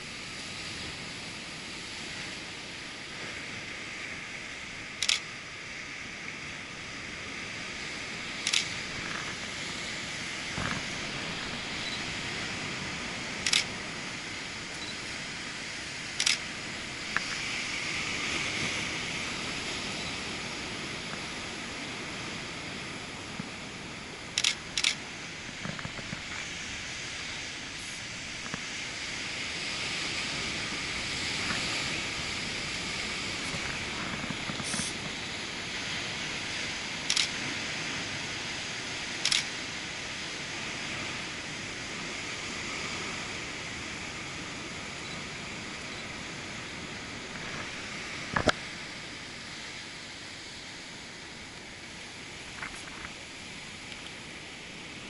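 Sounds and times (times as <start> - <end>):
ocean surf rushing: 0.0 - 55.0
camera shutter clicking: 5.0 - 5.3, 8.4 - 8.8, 13.4 - 13.7, 16.2 - 16.4, 24.3 - 25.0, 37.0 - 37.4, 39.2 - 39.5.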